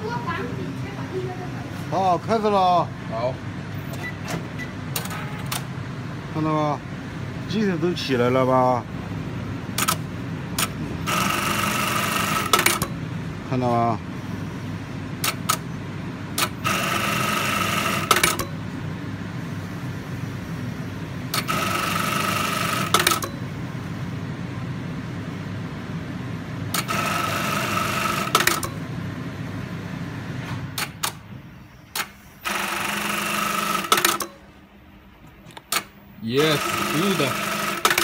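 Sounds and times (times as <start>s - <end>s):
steady machine hum: 0.0s - 38.0s
sewing machine stitching with a whine: 11.1s - 12.9s, 16.6s - 18.4s, 21.4s - 23.2s, 26.8s - 28.6s, 32.4s - 34.2s, 36.3s - 38.0s.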